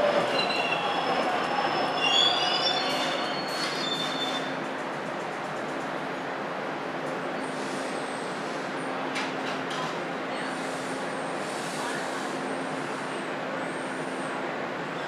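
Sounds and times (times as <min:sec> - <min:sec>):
high-pitched wheel squeal: 0:00.0 - 0:04.5
subway train rumble: 0:00.0 - 0:15.0.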